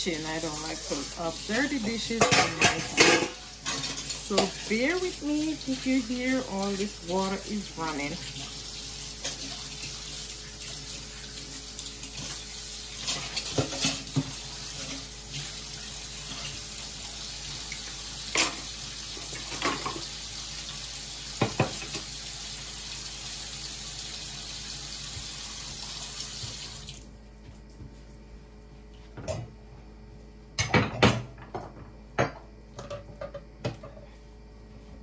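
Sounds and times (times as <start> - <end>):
faucet running into sink: 0.0 - 27.0
dishes clinking: 2.0 - 4.6.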